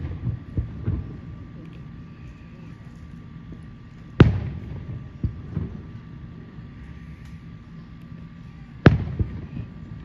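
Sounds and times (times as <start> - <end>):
faint firework pops: 4.2 - 5.9, 8.8 - 9.7
firework boom: 4.2 - 6.0.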